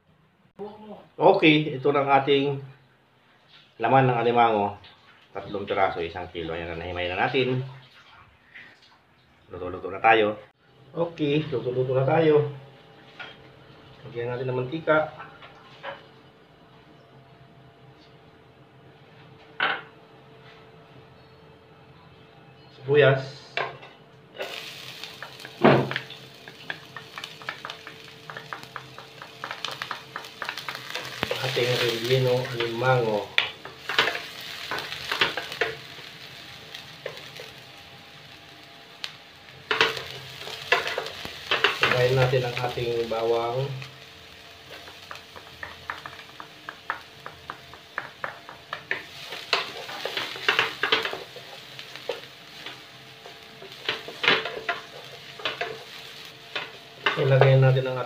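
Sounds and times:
onions sizzling in a pan: 0:24.3 - 0:58.0.

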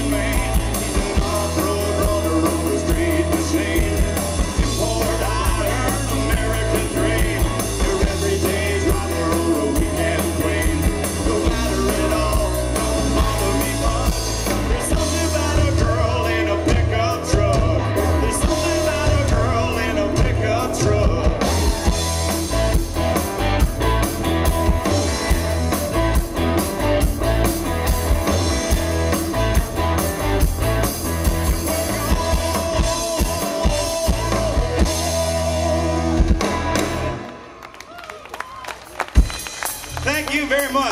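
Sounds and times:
person singing: 0:00.0 - 0:22.0, 0:31.4 - 0:36.2
drum kit beat: 0:00.0 - 0:37.2, 0:39.0 - 0:40.9
heavy bass line: 0:00.0 - 0:37.2
guitar: 0:00.0 - 0:40.9.

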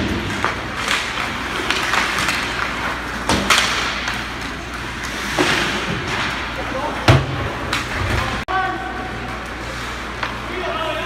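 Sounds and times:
hockey sticks and puck knocking: 0:00.0 - 0:06.4
skates scraping ice: 0:00.0 - 0:08.4.

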